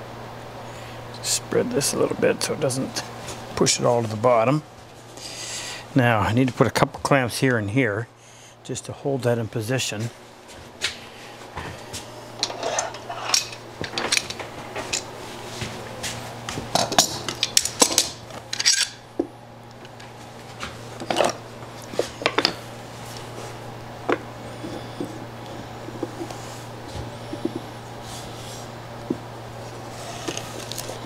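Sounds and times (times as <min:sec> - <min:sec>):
metal clamps clinking and clattering: 0:12.4 - 0:15.1, 0:16.8 - 0:19.0.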